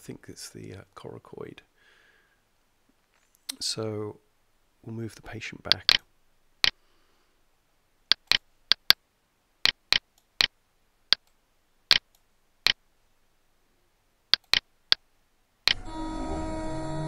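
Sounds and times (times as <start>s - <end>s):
computer mouse clicks: 5.7s - 6.0s, 8.1s - 9.0s, 9.7s - 10.5s, 11.1s - 12.3s, 14.4s - 14.7s.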